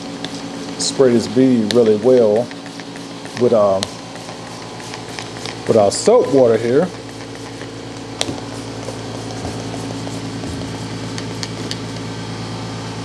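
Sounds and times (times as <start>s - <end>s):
electric air compressor humming: 0.0s - 13.0s.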